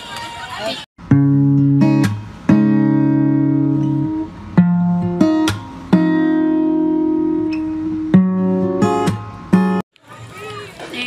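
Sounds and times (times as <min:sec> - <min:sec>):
acoustic guitar strums: 0:01.0 - 0:09.8.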